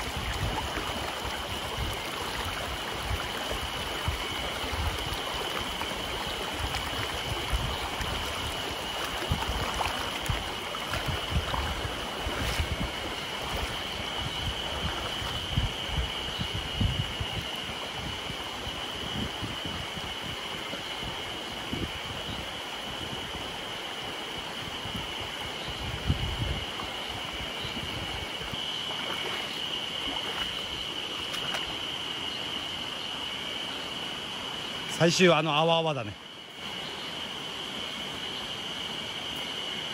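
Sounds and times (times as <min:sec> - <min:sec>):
stream running over rocks: 0:00.0 - 0:39.9.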